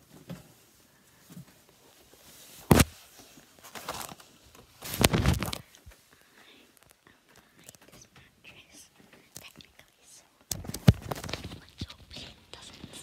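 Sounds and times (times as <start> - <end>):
fabric rustling on microphone: 0.0 - 7.0, 10.5 - 13.0.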